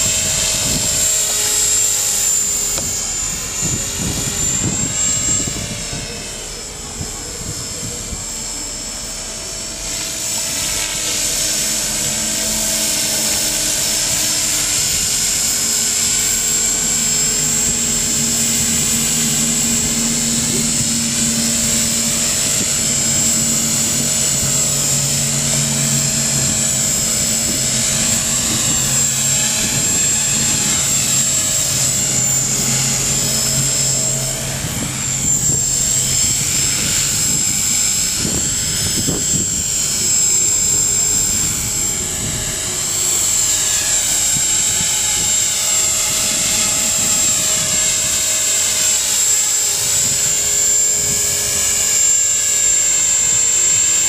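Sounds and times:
helicopter rotor noise: 0.0s - 54.0s
rc helicopter motor whine: 0.0s - 54.0s.

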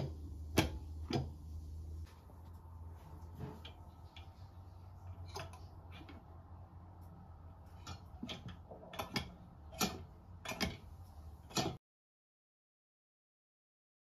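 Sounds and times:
drain stopper clicking and clacking: 5.1s - 6.2s, 7.8s - 11.8s.

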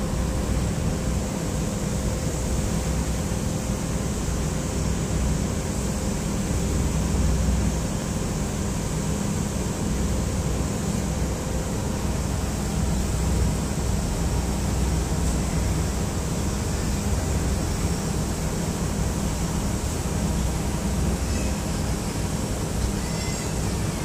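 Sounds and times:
boat engine drone: 0.0s - 24.0s
thin constant hum: 0.0s - 24.0s.

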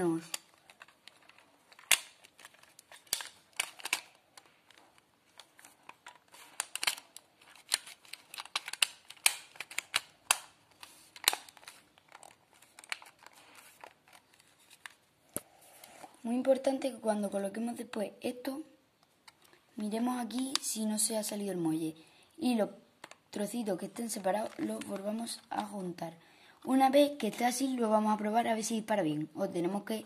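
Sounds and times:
plastic toy parts clicking: 0.2s - 14.2s, 23.0s - 23.2s.

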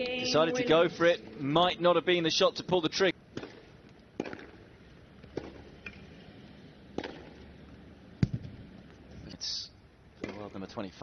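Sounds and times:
tennis ball bouncing on court: 3.3s - 4.6s, 5.2s - 6.0s, 6.9s - 7.5s.

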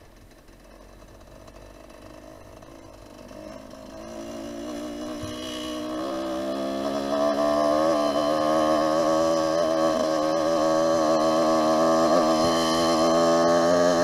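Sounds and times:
dirt bike engine running: 0.0s - 14.0s.

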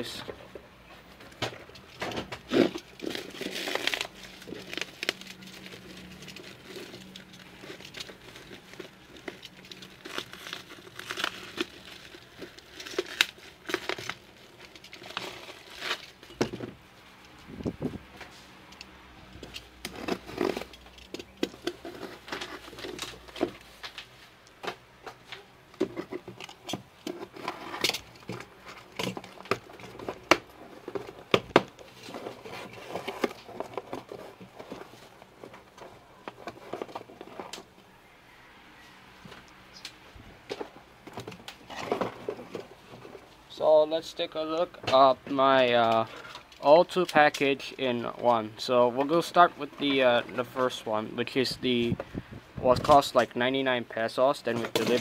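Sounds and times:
plastic mailer tearing and rustling: 1.8s - 16.7s, 19.4s - 24.4s, 25.1s - 37.7s.

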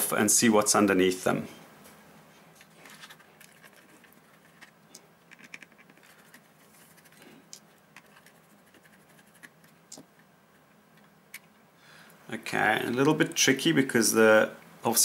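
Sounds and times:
faint scratching: 2.4s - 10.7s.

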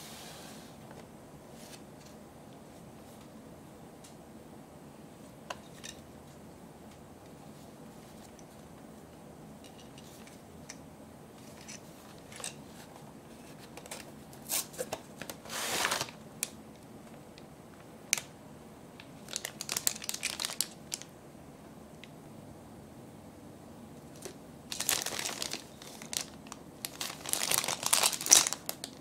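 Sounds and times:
cardboard tearing: 15.4s - 16.2s
plastic bag crinkling: 19.2s - 21.0s, 24.2s - 29.0s.

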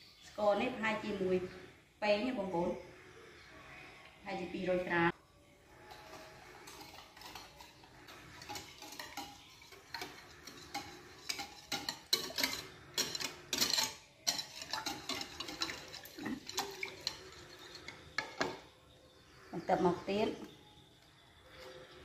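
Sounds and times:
wire whisk beating batter in bowl: 5.7s - 18.7s.

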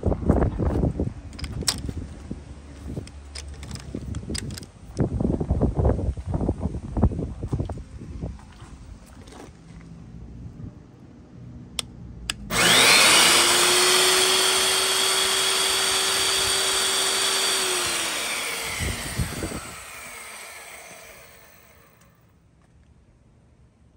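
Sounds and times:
drill motor whine: 12.5s - 22.2s.

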